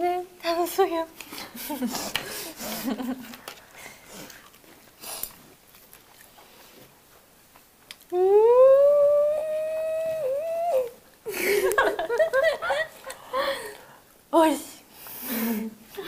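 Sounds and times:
quiet eating sounds: 0.6 - 16.0
woman humming mmm: 8.1 - 11.0.

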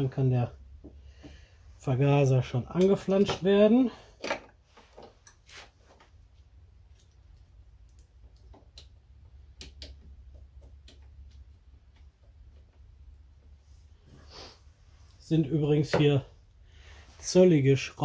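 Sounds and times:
small clicks and taps: 6.9 - 12.9.

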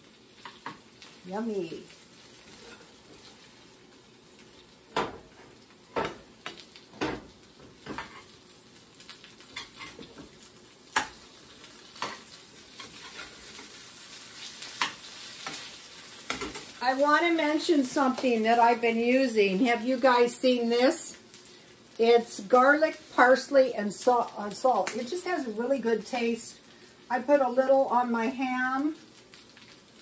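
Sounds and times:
food sizzling in oil: 0.0 - 30.0
utensils clinking and scraping pan: 12.0 - 13.7.

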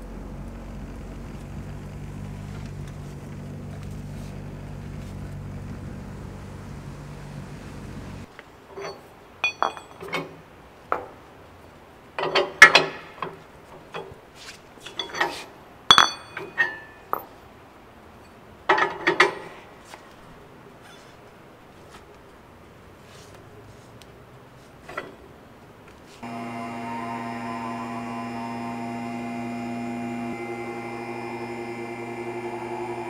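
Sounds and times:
car engine running: 0.0 - 8.3
metal clanks of car lift arms: 12.2 - 14.2, 14.8 - 17.3.

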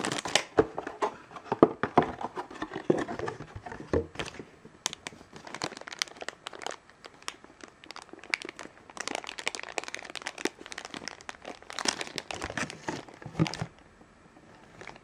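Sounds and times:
plastic bag crinkling: 0.0 - 0.6, 4.2 - 13.8, 14.6 - 15.0.

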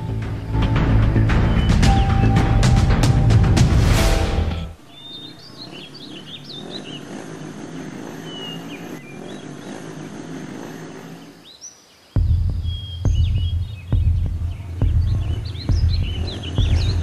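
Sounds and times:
birds chirping: 0.0 - 3.4, 4.8 - 17.0
loud music cue: 0.1 - 4.8.

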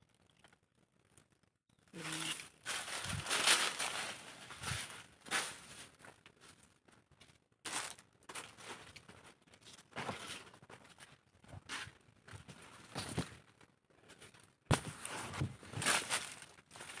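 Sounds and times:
dry leaves rustling and crackling: 2.0 - 6.0, 7.7 - 8.8, 15.8 - 17.0
footsteps on leaf litter: 2.0 - 6.0, 7.7 - 8.9, 15.8 - 17.0.

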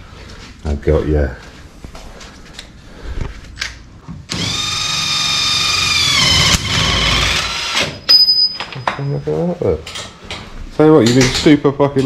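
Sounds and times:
cordless impact wrench running: 4.3 - 8.0.

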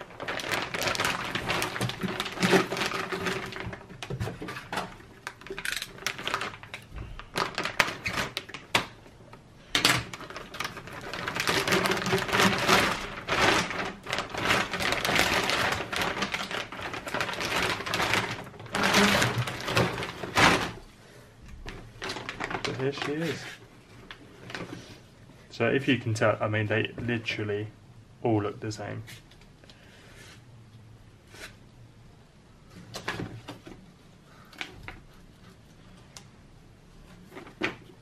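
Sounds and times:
plastic wrapping crinkling: 0.0 - 9.1, 9.8 - 25.0.

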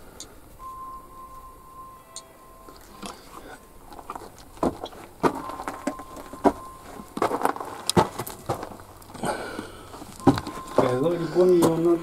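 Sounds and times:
faint high whine: 0.0 - 12.0
footsteps and scuffs on rock: 3.9 - 9.0, 10.0 - 12.0.

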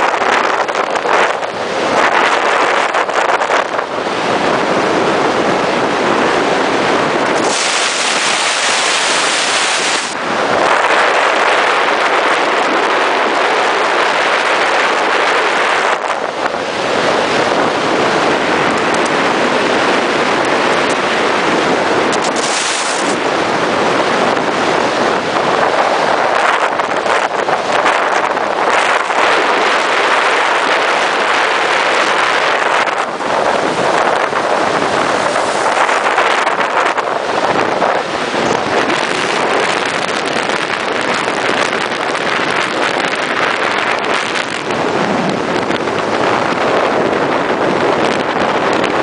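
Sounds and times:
wind and road noise: 0.0 - 49.0
harsh hiss: 7.4 - 10.2.

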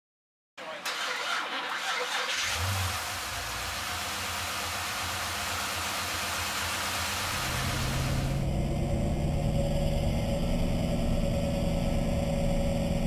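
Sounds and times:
car engine starting and idling: 0.6 - 13.0
rushing hiss: 3.0 - 8.4.

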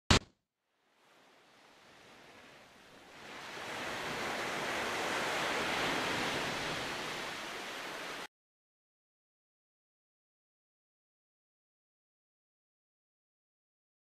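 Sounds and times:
small waves washing up beach: 0.9 - 8.3.

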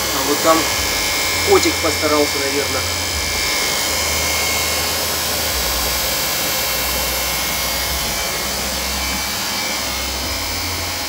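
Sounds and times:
treadmill motor whirring: 0.0 - 11.0.

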